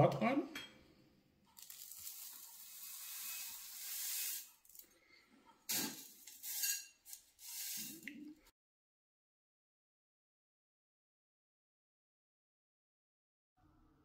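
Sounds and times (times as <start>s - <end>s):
grit pouring into bowl: 1.6s - 4.6s.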